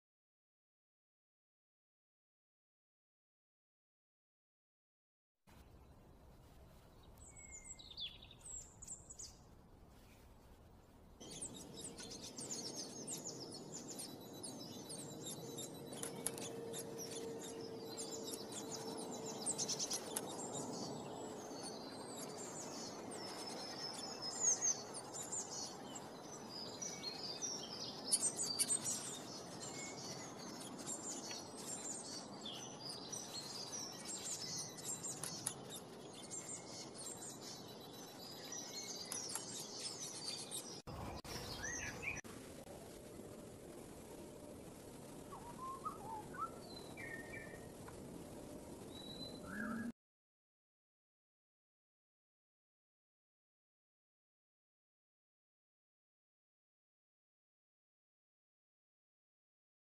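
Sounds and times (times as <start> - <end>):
songbirds chirping: 5.5 - 50.0.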